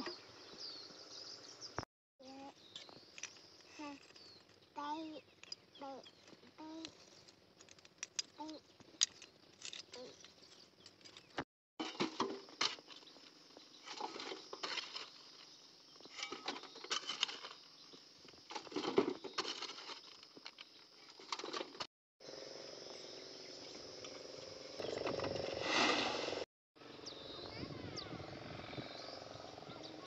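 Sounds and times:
stones rattling into metal wheelbarrow: 11.0s - 13.0s, 13.8s - 15.3s, 16.0s - 17.6s, 18.3s - 21.9s
metal shovel scraping stony soil: 25.5s - 26.4s.

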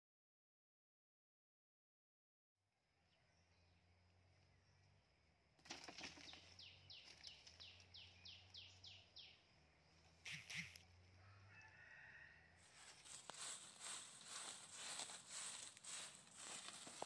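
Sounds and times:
broom swishing over dry leaves: 12.7s - 17.0s.

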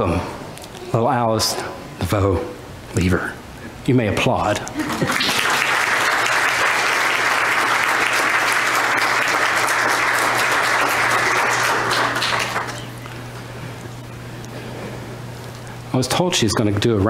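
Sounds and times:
crowd applauding: 4.8s - 13.0s.

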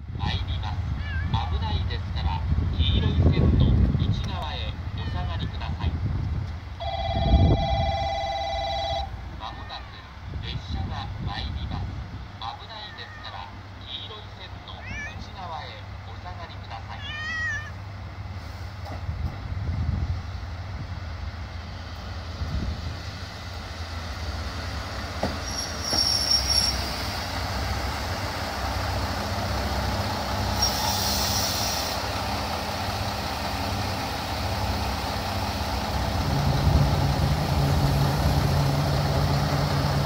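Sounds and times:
diesel railcar idling: 0.1s - 40.0s
short high-pitched squeals: 25.4s - 27.0s.

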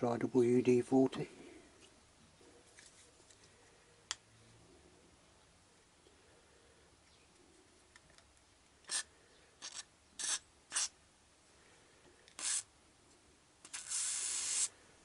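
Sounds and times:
aerosol spray hissing bursts: 12.4s - 12.7s, 13.7s - 14.7s.

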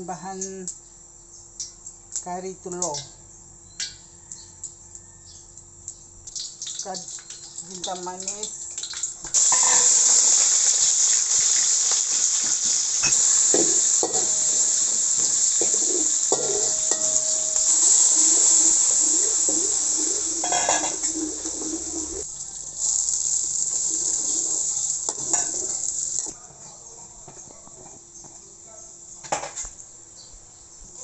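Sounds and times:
hot oil sizzling in a wok: 5.9s - 26.4s
metal spoon scraping a wok: 9.4s - 22.2s.

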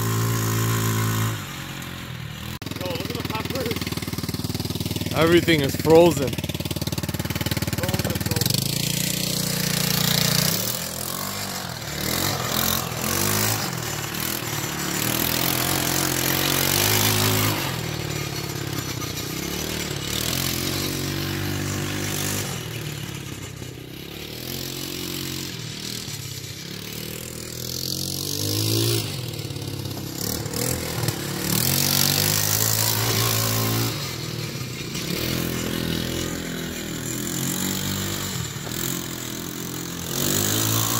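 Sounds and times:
atv engine revving: 0.0s - 40.9s.

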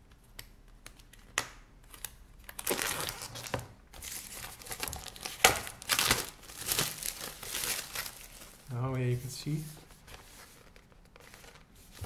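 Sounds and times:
plastic wrap tearing and crinkling: 1.9s - 8.8s.

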